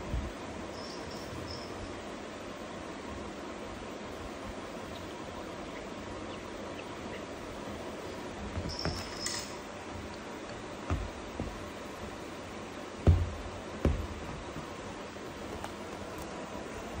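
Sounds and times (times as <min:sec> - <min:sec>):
background hiss: 0:00.0 - 0:17.0
soft thumps: 0:08.5 - 0:09.2, 0:10.0 - 0:12.2, 0:13.0 - 0:15.8.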